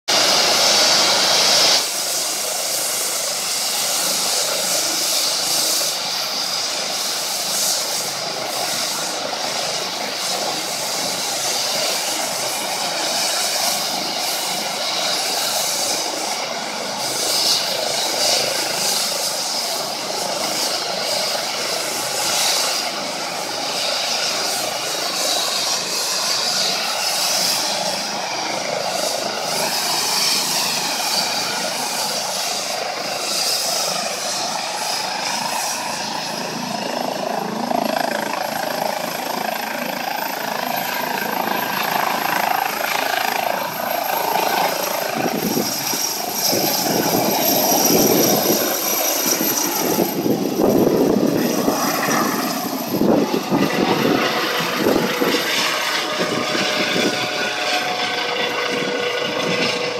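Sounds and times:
helicopter rotor noise: 0.1 - 59.9
helicopter turbine whine: 0.1 - 59.9.

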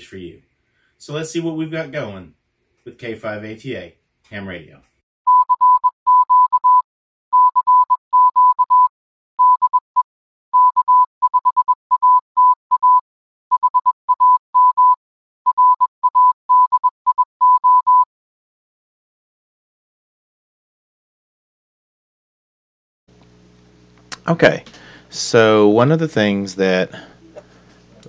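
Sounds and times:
morse code beeps: 5.3 - 9.8, 10.6 - 13.0, 13.6 - 18.1.

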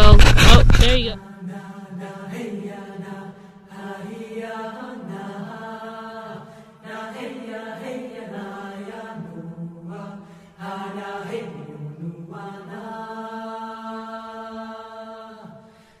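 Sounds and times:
chanted singing: 1.0 - 15.7.

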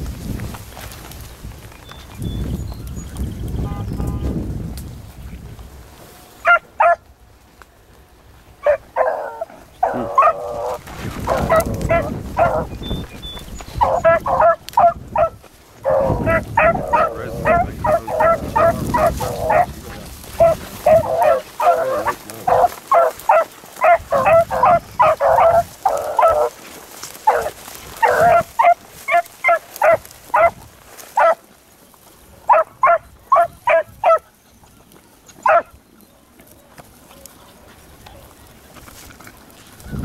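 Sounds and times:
hounds baying: 6.4 - 7.1, 8.5 - 31.5, 32.3 - 38.8.

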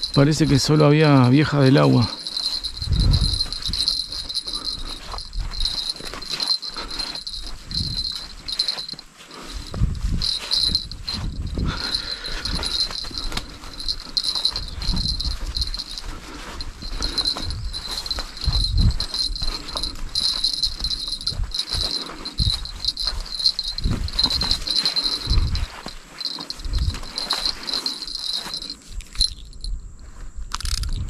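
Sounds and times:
insects chirping: 0.0 - 31.0
low rumbling bumps: 2.4 - 6.4, 9.6 - 15.9.

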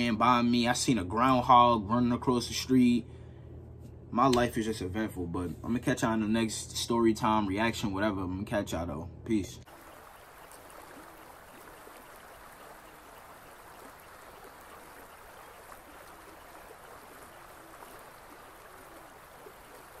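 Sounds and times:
flowing water rushing: 9.7 - 20.0.

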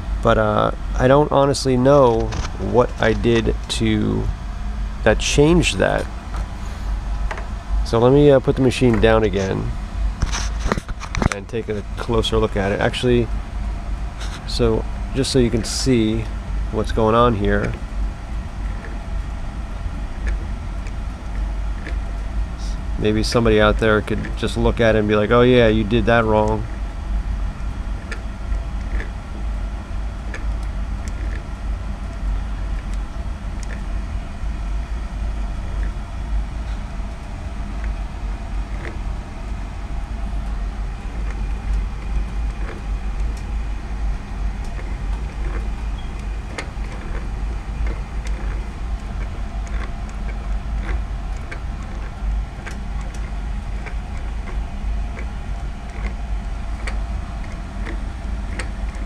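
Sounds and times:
light mechanical clicks: 14.2 - 17.8, 27.5 - 29.2, 30.3 - 33.9, 40.3 - 59.0
sewing machine motor humming: 30.4 - 59.0.

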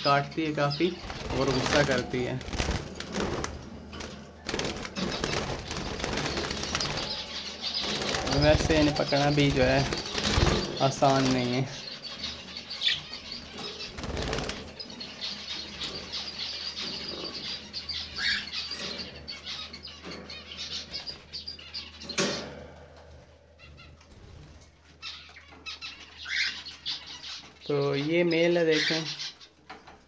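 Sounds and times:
birds flapping wings in cage: 1.0 - 11.7, 13.6 - 14.8.

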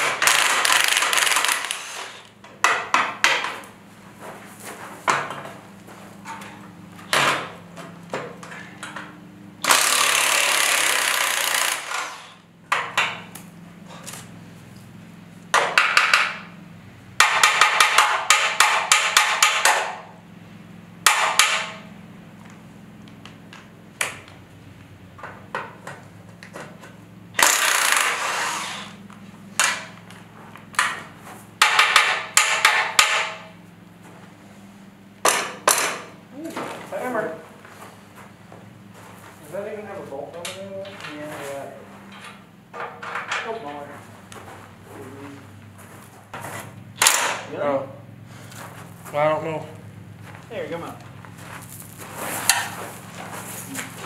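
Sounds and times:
impact driver rattling: 0.0 - 3.5, 9.6 - 13.2, 27.4 - 28.9
metal knocks and clanks: 6.2 - 9.2, 42.0 - 43.8.

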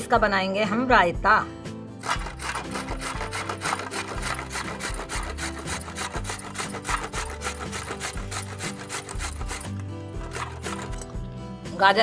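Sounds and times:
carrot grated on metal grater: 2.0 - 11.2.

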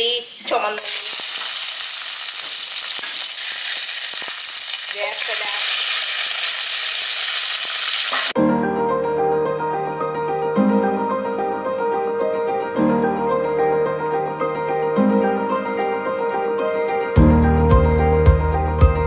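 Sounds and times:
food sizzling in hot oil: 0.0 - 8.4
piano music: 8.3 - 19.0.

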